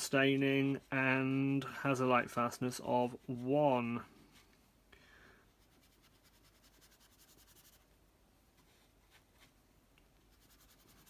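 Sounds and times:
brush rubbing on wet paper: 5.6s - 7.9s, 10.3s - 11.0s.

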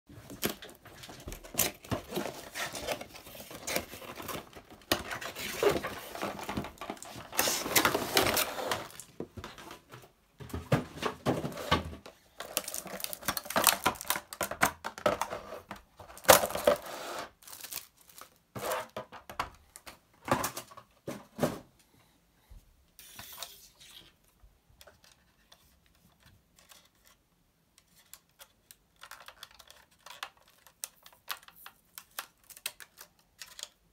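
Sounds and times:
packaging rustling and crinkling: 0.1s - 19.0s.

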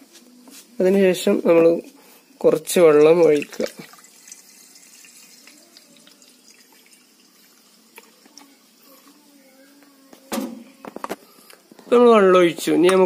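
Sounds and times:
water trickling through funnel: 2.6s - 9.2s.

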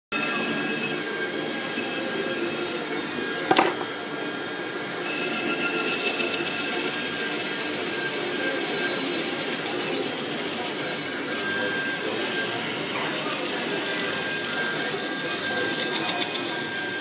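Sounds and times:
sharp knock: 3.5s - 3.9s.

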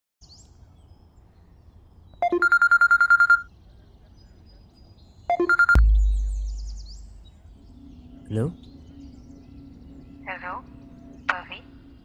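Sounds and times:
smartphone ringtone trill: 2.2s - 3.5s, 5.3s - 5.8s.

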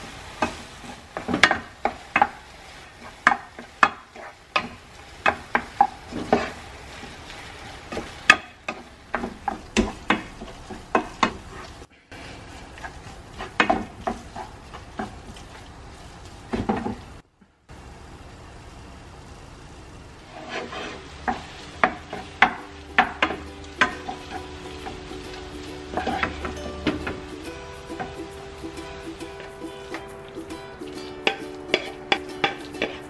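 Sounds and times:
onions sizzling in frying pan: 0.0s - 33.0s
wooden spatula scraping pan: 0.4s - 15.6s, 20.2s - 27.3s, 31.2s - 33.0s.

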